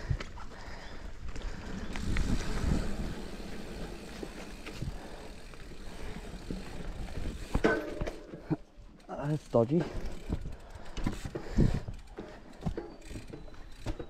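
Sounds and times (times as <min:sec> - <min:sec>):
tyres rumbling over dirt: 0:01.4 - 0:08.6
bike knocks and rattles: 0:06.2 - 0:08.6, 0:09.5 - 0:14.0.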